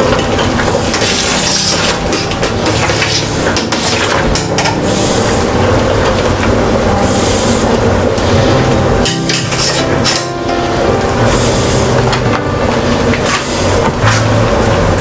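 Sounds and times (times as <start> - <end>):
liquid boiling with bubbling: 0.0 - 10.1
low hum: 0.0 - 15.0.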